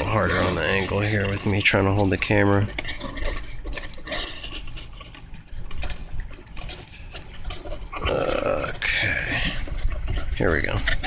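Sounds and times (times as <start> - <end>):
camera handling rustle: 2.7 - 4.2.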